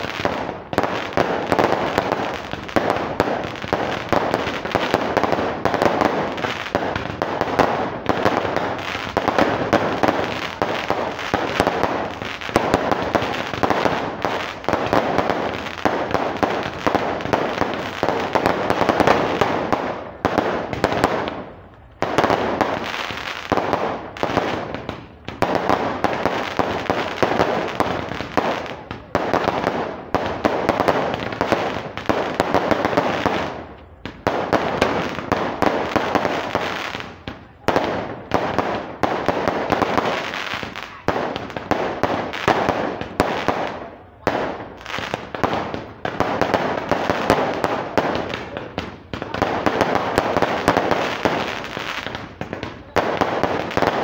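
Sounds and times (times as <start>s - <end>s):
fireworks bursting and crackling: 0.0s - 54.0s.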